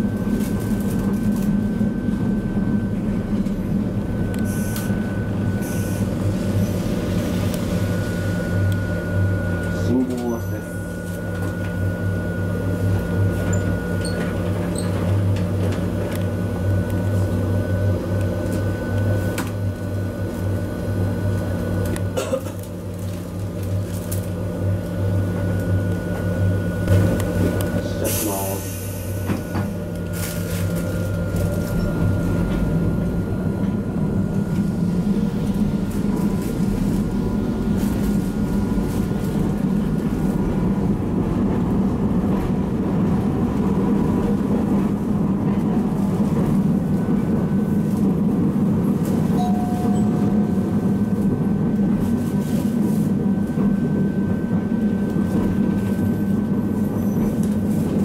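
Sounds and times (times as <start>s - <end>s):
tram motors and wheels humming: 0.0s - 58.0s
faint high whine: 49.4s - 50.8s.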